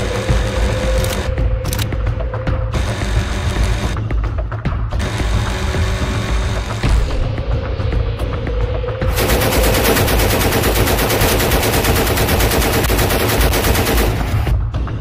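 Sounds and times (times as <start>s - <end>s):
machine gun automatic fire: 9.1s - 14.5s.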